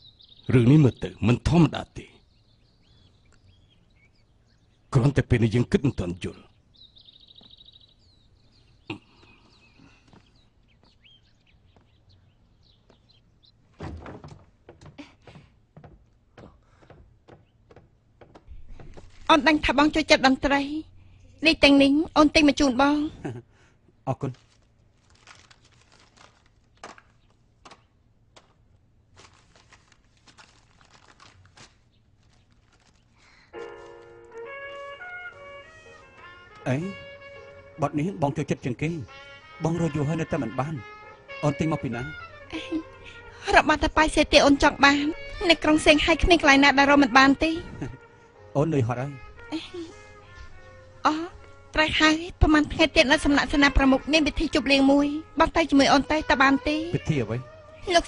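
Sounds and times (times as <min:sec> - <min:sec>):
small birds chirping: 0:00.0 - 0:58.0
footsteps: 0:12.8 - 0:19.6, 0:28.4 - 0:37.7
door opening: 0:13.7 - 0:16.1
paper sleeves rustling: 0:18.6 - 0:19.6, 0:24.2 - 0:37.0
music: 0:33.6 - 0:58.0.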